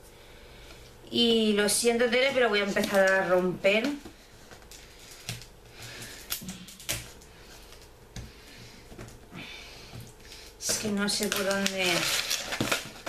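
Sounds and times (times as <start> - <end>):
wrapping rustling: 1.8 - 7.9, 10.1 - 13.0.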